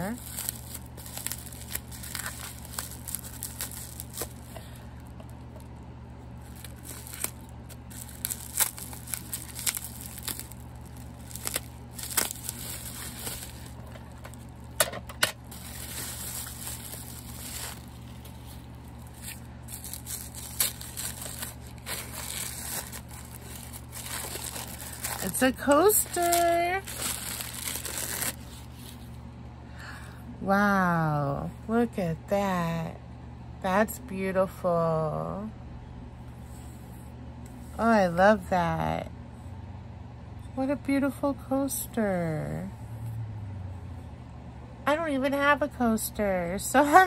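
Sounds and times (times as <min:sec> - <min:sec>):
paper wrapping rustling and tearing: 0:00.0 - 0:04.8, 0:06.4 - 0:14.8, 0:15.4 - 0:29.1
steady low hum: 0:00.0 - 0:47.0.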